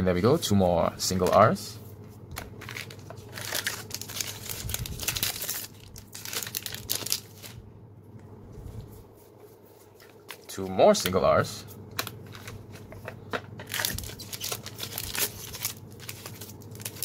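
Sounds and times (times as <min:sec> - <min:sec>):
cards rustling: 0:02.4 - 0:07.6, 0:12.0 - 0:17.0
foil wrapper crinkling and tearing: 0:02.6 - 0:07.6, 0:13.6 - 0:17.0.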